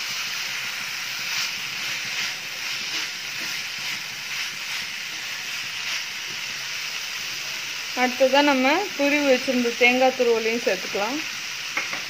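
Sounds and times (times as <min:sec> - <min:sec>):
food sizzling in a frying pan: 0:00.0 - 0:12.0
wooden spatula scraping: 0:01.2 - 0:06.7.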